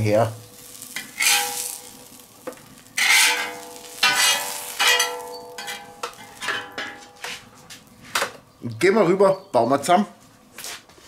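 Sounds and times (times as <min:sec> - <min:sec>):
metal spatula scraping steel plate: 0:01.0 - 0:01.8, 0:03.0 - 0:07.5.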